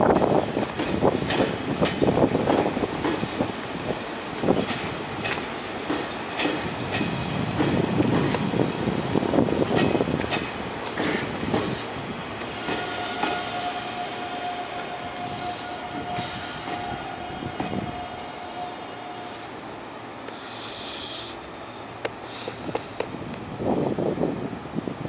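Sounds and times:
train wheels clacking over joints: 0.1s - 8.6s, 9.5s - 16.9s, 22.0s - 23.4s
wheel squeal: 12.7s - 14.0s, 18.0s - 23.7s
short hiss: 22.1s - 23.2s.

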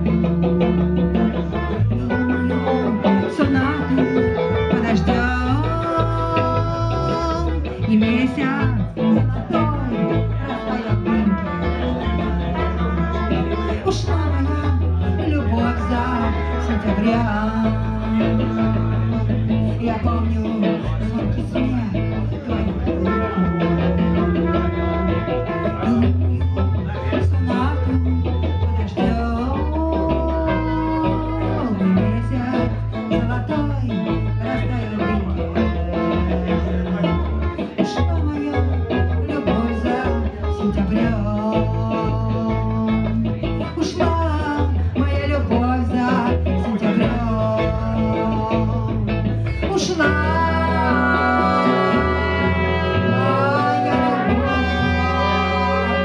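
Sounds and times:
woman singing into microphone: 0.0s - 28.2s, 28.8s - 56.0s
bass guitar: 0.0s - 56.0s
electric guitar: 0.0s - 56.0s
trumpet: 1.0s - 4.0s, 10.7s - 14.4s, 23.0s - 26.2s, 50.6s - 56.0s
long held melody note: 50.8s - 56.0s.

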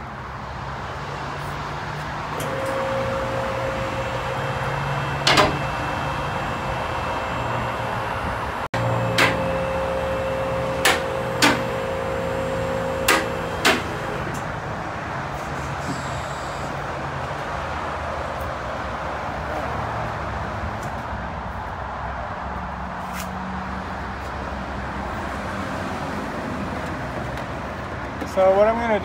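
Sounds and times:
hydraulic pump motor humming: 2.3s - 14.5s.

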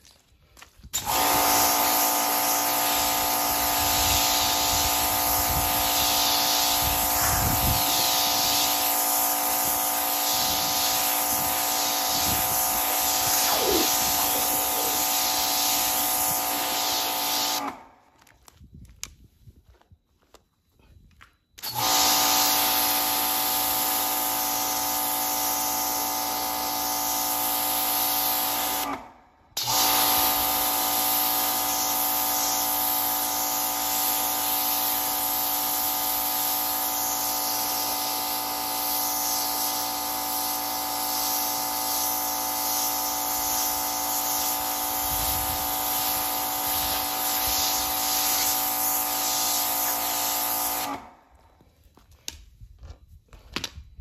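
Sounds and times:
water spray hissing: 1.0s - 17.7s, 29.9s - 51.0s
pressure washer motor whine: 1.0s - 17.8s, 21.6s - 29.0s, 29.6s - 51.4s.

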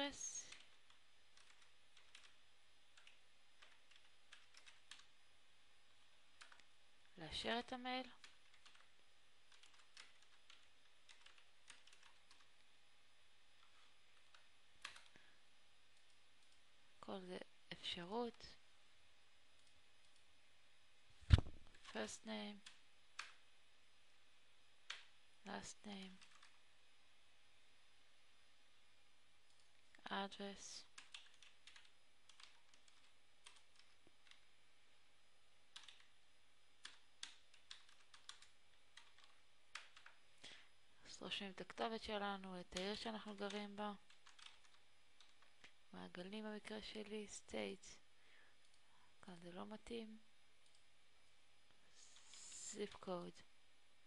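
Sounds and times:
low steady hum: 0.0s - 54.0s
computer keyboard typing: 0.4s - 5.1s, 6.4s - 6.7s, 8.0s - 8.9s, 9.5s - 12.6s, 13.6s - 15.2s, 26.0s - 26.6s, 30.8s - 34.4s, 35.7s - 36.1s, 36.8s - 40.2s, 42.7s - 45.8s
keyboard keystrokes: 35.7s - 36.1s, 42.8s - 45.7s.

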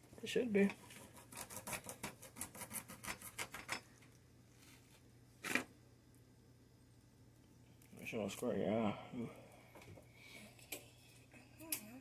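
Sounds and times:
rasping on lime rind: 0.7s - 3.7s.

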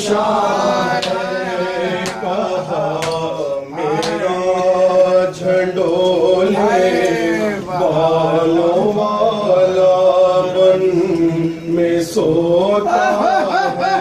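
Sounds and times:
men chanting over a microphone: 0.0s - 14.0s
chest-beating slaps: 3.0s - 3.3s.

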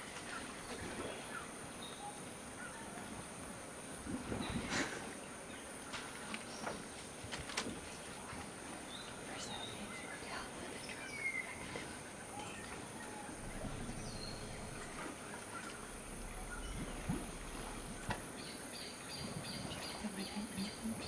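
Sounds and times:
high insect drone: 13.2s - 21.0s.

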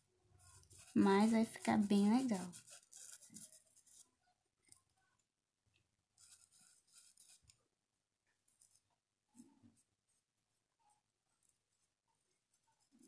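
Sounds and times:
paintbrush rustling on cloth: 0.3s - 4.1s, 6.2s - 7.5s.

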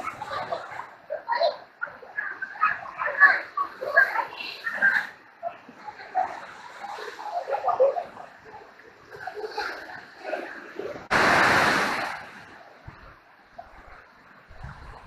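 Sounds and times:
whitewater rapids rushing: 9.3s - 14.6s.

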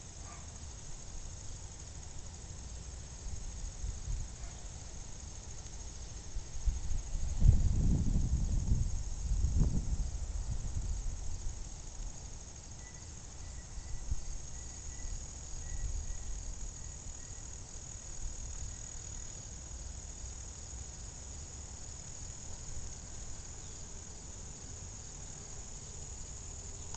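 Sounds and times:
high-pitched insect chorus: 0.0s - 26.9s
faint repeated chirp: 12.8s - 17.5s.

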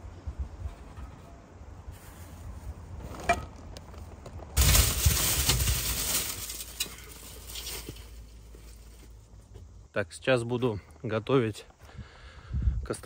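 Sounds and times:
plastic bag rustling: 3.6s - 9.0s.

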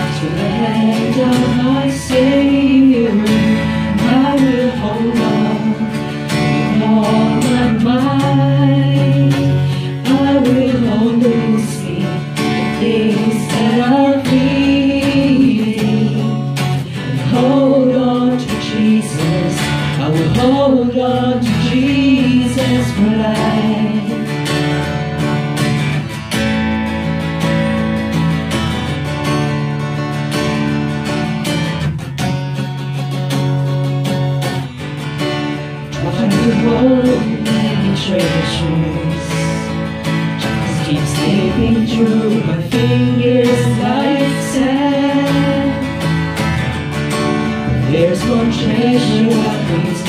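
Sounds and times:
person singing worship song: 0.0s - 24.4s, 35.9s - 46.4s, 47.7s - 50.0s
strummed acoustic guitar: 0.0s - 50.0s.

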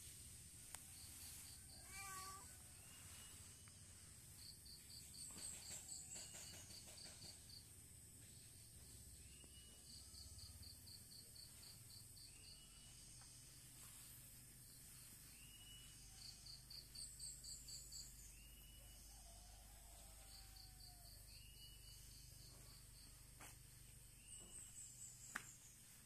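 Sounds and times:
cat meowing: 1.8s - 2.5s.

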